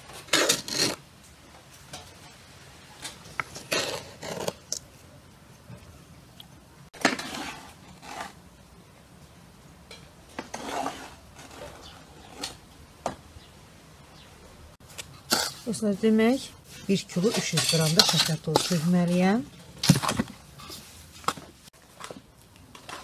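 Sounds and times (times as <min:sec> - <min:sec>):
spatula scraping sugar in metal bowl: 0:07.0 - 0:08.4, 0:10.5 - 0:12.6, 0:15.3 - 0:19.4.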